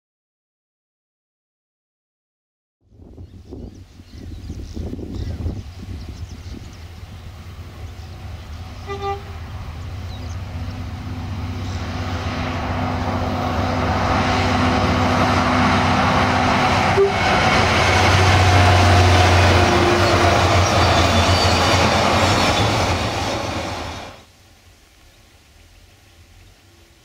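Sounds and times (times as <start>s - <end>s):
train rumble: 3.0s - 24.3s
locomotive engine drone: 4.8s - 24.3s
freight wagons rolling past: 6.2s - 24.3s.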